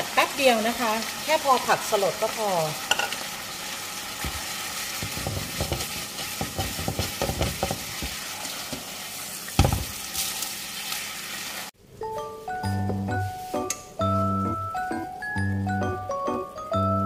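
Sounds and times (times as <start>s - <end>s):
sauce sizzling: 0.0s - 11.8s
spatula scraping a pan: 5.0s - 8.2s.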